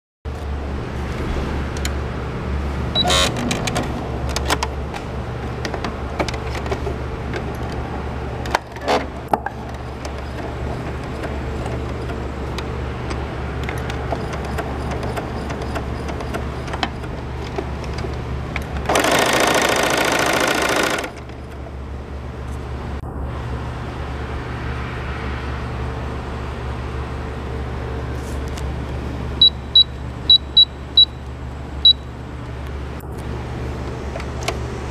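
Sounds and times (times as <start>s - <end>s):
sewing machine running: 18.9s - 21.2s.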